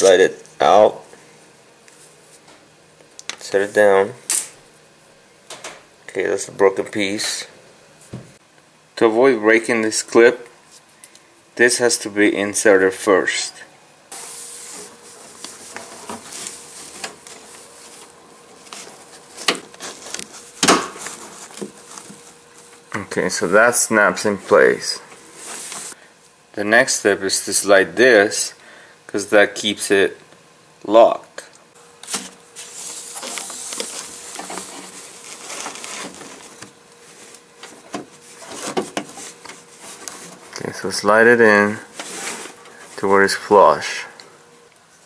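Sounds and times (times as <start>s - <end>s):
rustling and scraping in metal door: 14.2s - 22.2s, 32.2s - 40.6s, 41.9s - 43.0s.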